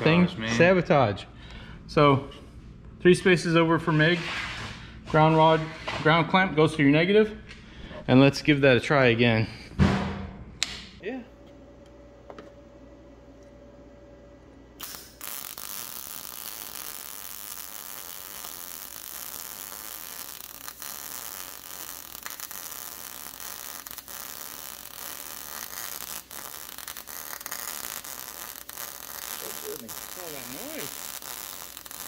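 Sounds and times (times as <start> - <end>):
welding arc crackling: 14.8 - 32.0.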